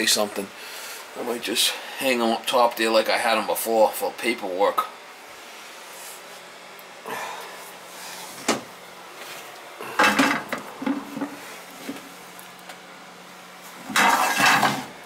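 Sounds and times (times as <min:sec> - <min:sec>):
scraping metal rattle: 0:13.9 - 0:14.9.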